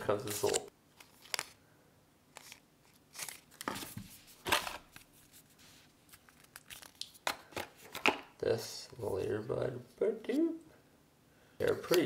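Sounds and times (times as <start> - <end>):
packaging wrap rustling: 0.2 - 1.6, 2.3 - 8.1.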